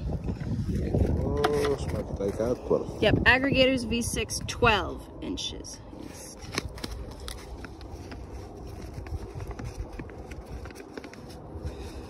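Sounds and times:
paper bag crinkling: 6.3s - 12.0s.

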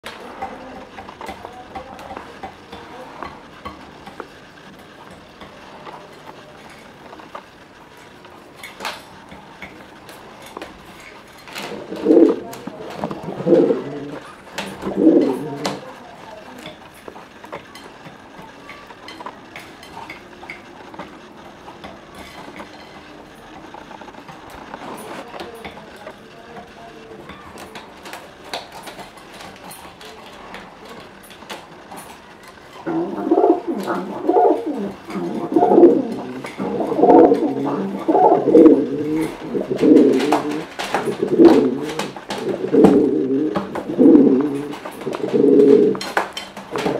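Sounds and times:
pigeons cooing: 11.5s - 15.9s, 32.8s - 46.9s.

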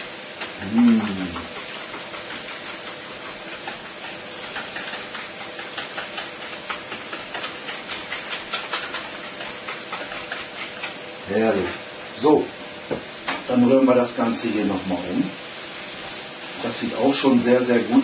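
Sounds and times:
food sizzling in a pan: 0.0s - 18.0s
whisk clicking in plastic bowl: 1.9s - 11.0s.

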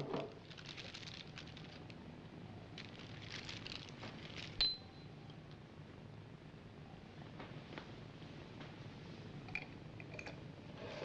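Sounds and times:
paper wrapper crackling: 0.0s - 2.0s, 2.7s - 4.6s.

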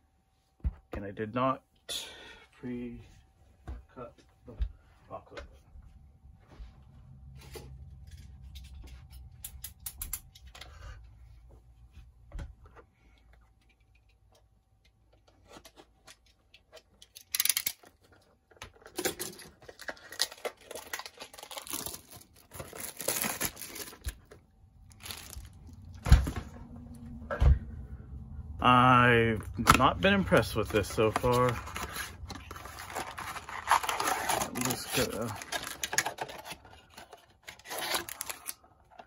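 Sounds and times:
cardboard box tearing: 31.0s - 36.6s, 37.5s - 38.5s.

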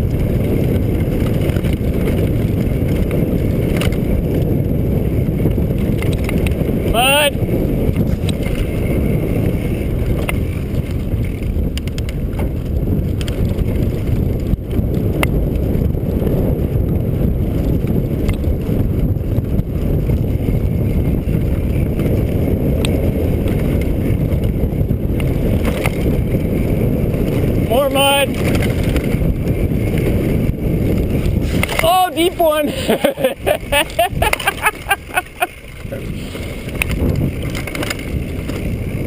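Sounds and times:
bike rattling over bumps: 0.0s - 39.0s
wind on microphone: 0.0s - 39.0s
tyres rolling on dirt: 25.2s - 39.0s.

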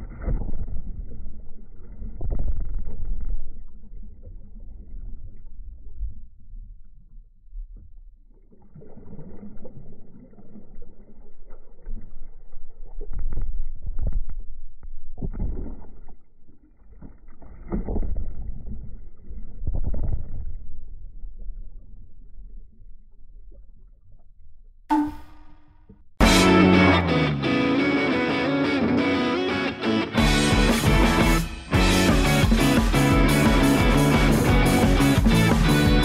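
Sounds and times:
muffled underwater churning of swimmer: 8.4s - 12.8s.

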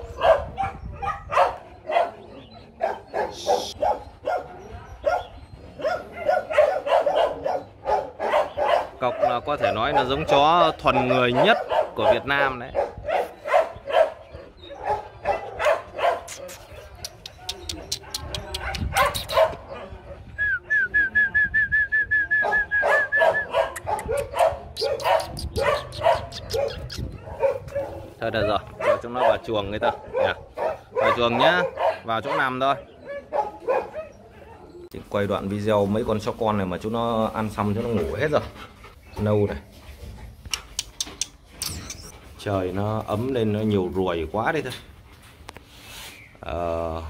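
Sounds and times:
puppies whimpering and squeaking: 16.3s - 19.8s, 24.8s - 28.7s, 37.3s - 43.8s.

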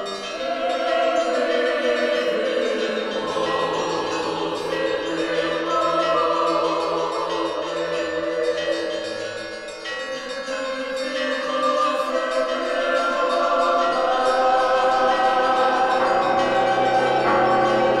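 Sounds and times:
choir singing sustained chords: 0.0s - 18.0s
musical backing: 12.7s - 18.0s.

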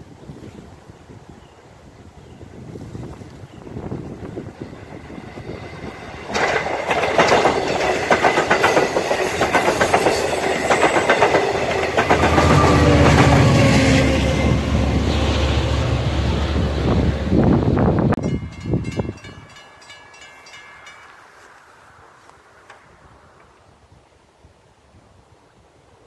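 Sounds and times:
diesel locomotive engine drone: 3.7s - 20.3s
wheel clatter over rail joints: 6.2s - 13.4s.

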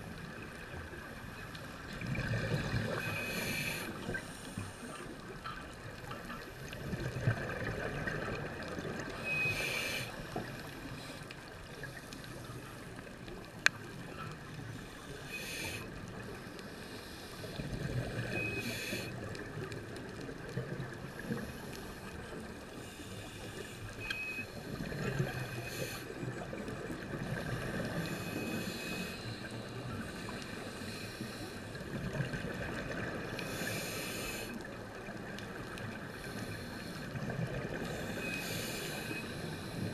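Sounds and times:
regulator hissing inhalations: 15.0s - 15.9s.

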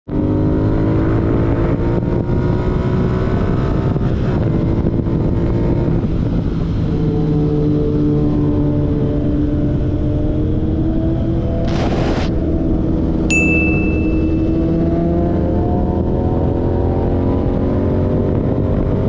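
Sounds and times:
motorcycle engine accelerating: 0.1s - 19.0s
wind and road noise: 0.1s - 19.0s.

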